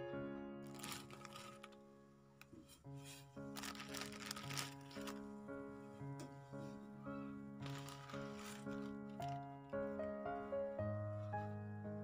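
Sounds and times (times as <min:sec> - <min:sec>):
crinkling crackling noise: 0:00.6 - 0:11.5.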